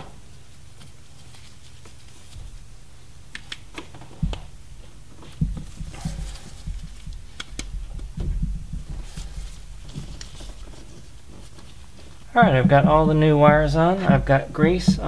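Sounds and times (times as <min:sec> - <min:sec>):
clicks and rubbery knocks of wires: 0:03.4 - 0:04.6, 0:05.2 - 0:15.0.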